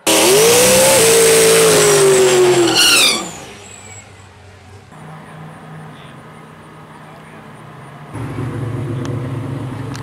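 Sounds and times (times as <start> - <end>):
car engine at high revs: 0.0 - 3.6
tires squealing: 0.0 - 4.4.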